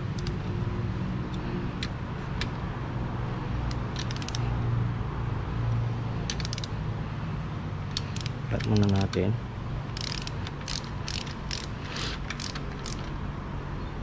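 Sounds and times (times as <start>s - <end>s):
ratchet wrench clicking: 0.0s - 0.4s, 3.6s - 4.4s, 6.3s - 6.8s, 7.9s - 9.3s, 9.9s - 13.2s.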